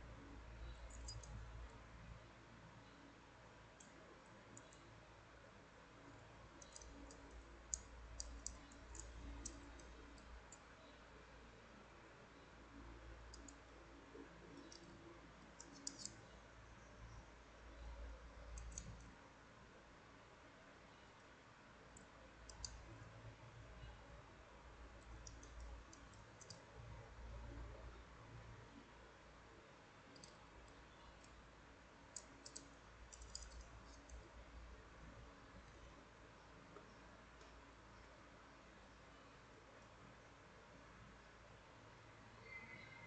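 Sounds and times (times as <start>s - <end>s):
metal puzzle pieces clicking: 15.6s - 16.2s
metal wire puzzle pieces clicking: 15.6s - 16.2s, 32.2s - 34.1s.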